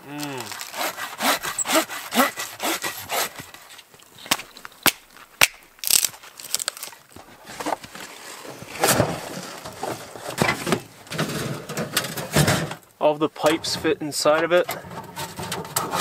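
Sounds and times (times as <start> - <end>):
hand saw cutting log: 0.2 - 3.8, 15.1 - 16.0
rustling scrape: 6.4 - 12.8, 13.5 - 16.0.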